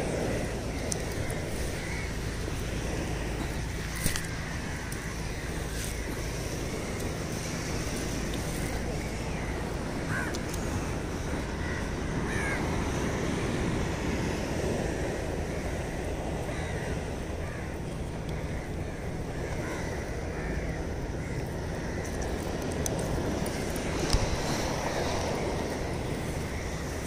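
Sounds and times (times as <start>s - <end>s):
wind: 0.0s - 27.0s
crow cawing: 0.2s - 2.4s, 8.6s - 10.5s, 11.4s - 12.8s, 15.5s - 22.2s.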